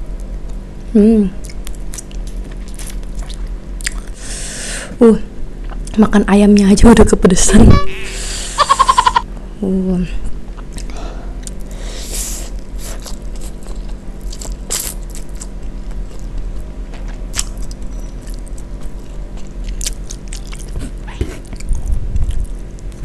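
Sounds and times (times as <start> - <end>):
steady low hum: 0.0 - 23.0
chewing: 12.8 - 23.0.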